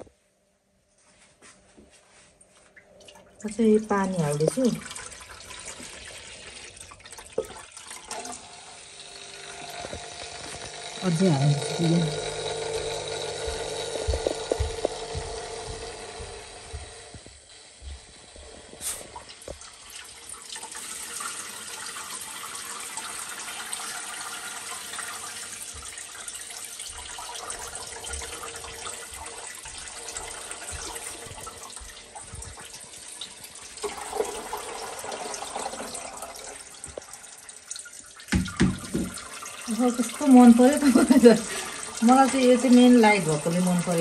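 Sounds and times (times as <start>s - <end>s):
tabletop fountain water splashing: 2.6s - 16.7s, 17.3s - 44.0s
soft knocks: 38.3s - 39.2s.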